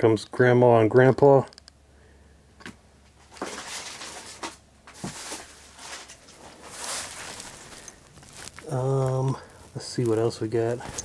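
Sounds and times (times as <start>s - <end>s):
paper rustling: 3.3s - 11.0s.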